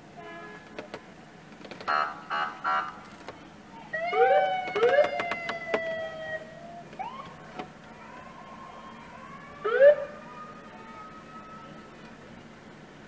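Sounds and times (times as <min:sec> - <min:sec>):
held siren tone: 0:03.9 - 0:07.4, 0:08.4 - 0:12.0
police siren whoops: 0:03.9 - 0:12.1.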